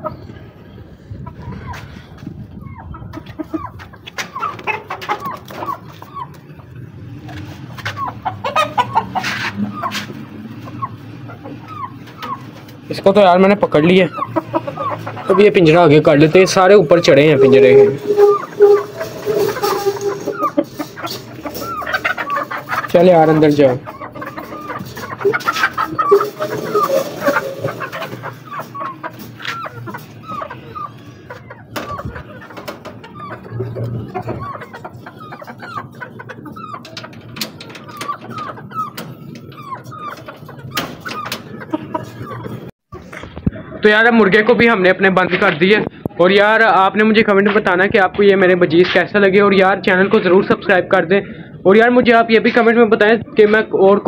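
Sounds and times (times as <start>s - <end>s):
chickens clucking and squawking: 0.0s - 54.0s
rustling: 16.5s - 30.4s.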